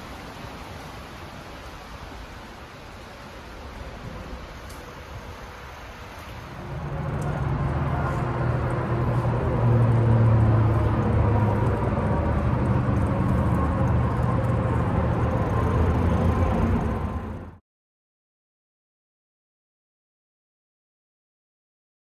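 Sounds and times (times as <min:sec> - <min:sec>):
wind rumble on microphone: 0:03.4 - 0:17.6
bicycle tyre noise: 0:03.8 - 0:17.6.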